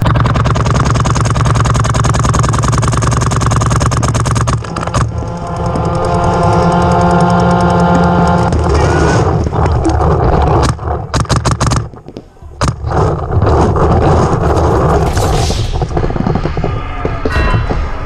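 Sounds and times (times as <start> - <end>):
low rumble: 0.0 - 11.1, 12.5 - 18.0
steady sustained tone: 4.6 - 8.5.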